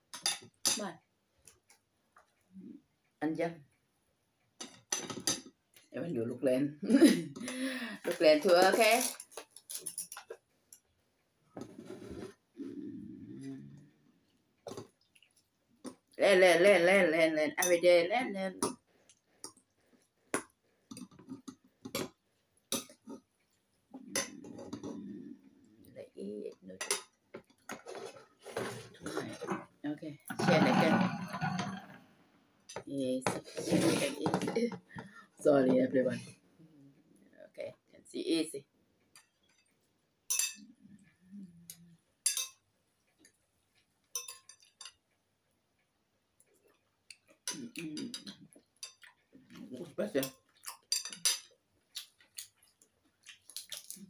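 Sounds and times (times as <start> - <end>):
cutlery clinking on ceramic bowl: 0.1 - 0.9, 40.3 - 40.6, 42.2 - 42.6, 44.1 - 45.0, 47.1 - 49.1, 50.2 - 51.6
faint scrapes and taps: 11.6 - 12.4.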